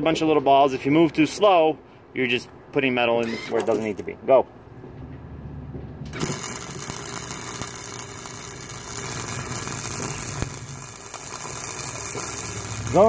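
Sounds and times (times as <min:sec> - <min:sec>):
wire welder arc crackling: 0:03.2 - 0:04.1, 0:06.1 - 0:13.0
sharp crack: 0:06.1 - 0:13.0.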